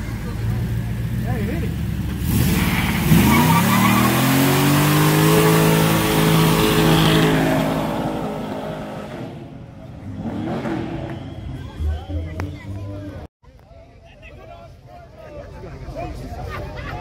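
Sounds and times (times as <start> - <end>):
car engine revving: 0.7 - 11.4.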